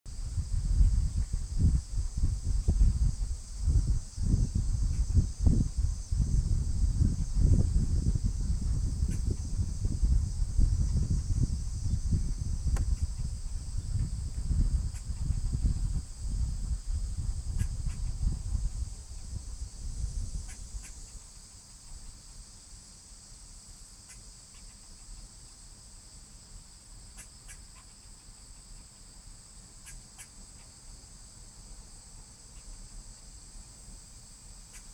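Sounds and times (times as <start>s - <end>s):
wind rumbling on microphone: 0.1s - 22.2s
cicada chorus buzzing: 0.1s - 34.9s.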